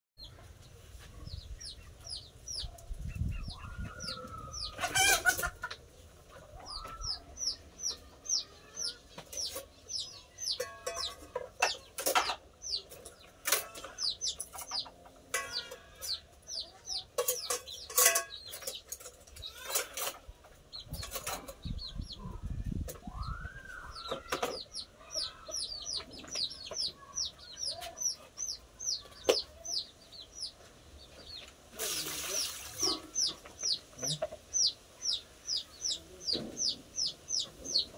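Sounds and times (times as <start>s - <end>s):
chickens chirping: 0.2s - 37.9s
dishes and pots clattering: 10.5s - 16.2s, 17.1s - 20.3s.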